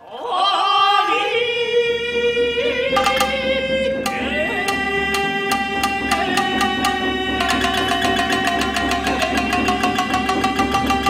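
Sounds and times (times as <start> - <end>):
sharp percussive notes: 2.8 - 11.0.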